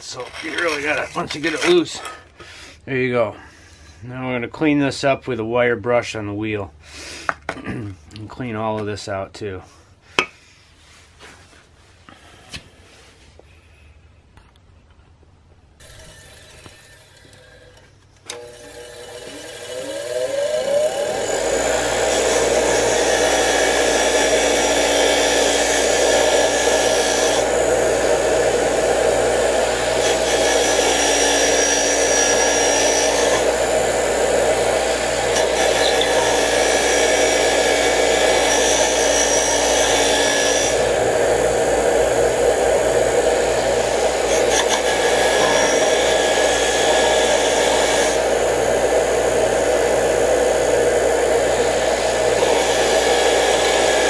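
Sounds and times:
wire wheel scraping rust off metal: 0.0s - 2.2s, 35.0s - 37.6s.

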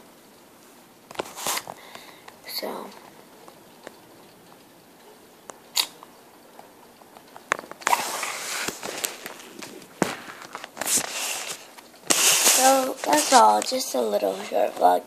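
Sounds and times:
camera click: 5.7s - 6.0s
rubbing against microphone: 7.8s - 14.6s.

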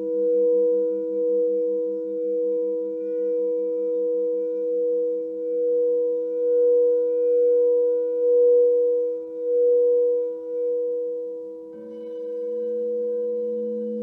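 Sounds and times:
crystal singing bowls ringing: 0.0s - 14.0s
singing bowl struck: 11.7s - 14.0s.

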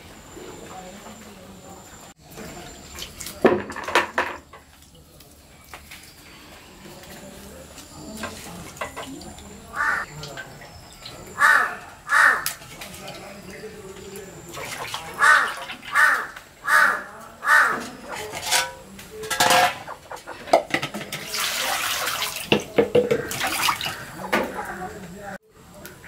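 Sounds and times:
water splashing in a metal bowl: 2.2s - 6.3s, 6.9s - 11.4s, 12.3s - 16.5s, 17.8s - 25.1s
crow cawing: 9.7s - 10.1s, 11.3s - 12.6s, 14.7s - 18.2s, 23.0s - 25.0s
water pouring: 20.9s - 24.4s.

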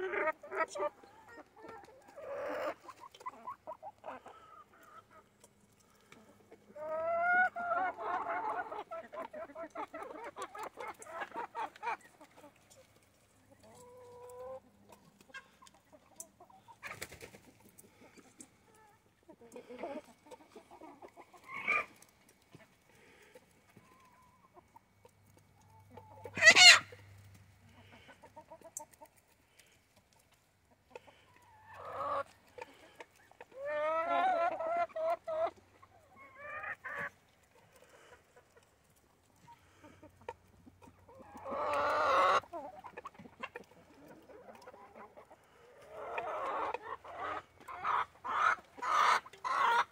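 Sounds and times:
chicken squawk: 0.0s - 5.2s, 6.7s - 12.4s, 18.8s - 22.0s, 25.8s - 28.7s, 30.9s - 37.1s, 40.8s - 49.9s
chickens clucking: 0.0s - 49.9s
drawn-out pitched chicken calls: 0.0s - 49.9s.

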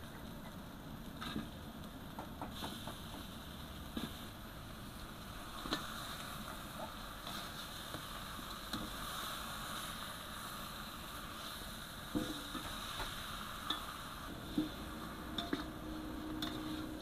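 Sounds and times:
chicken sizzling in a wok: 0.0s - 17.0s
metal spatula scraping wok: 13.5s - 17.0s.

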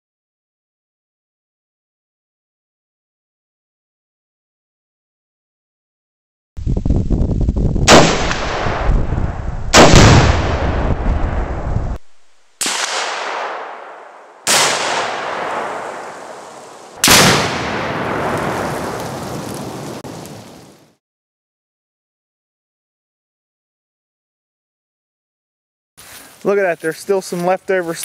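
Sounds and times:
explosive target blasts with echo: 7.8s - 12.0s, 12.6s - 19.6s
sharp booms: 7.8s - 20.2s.

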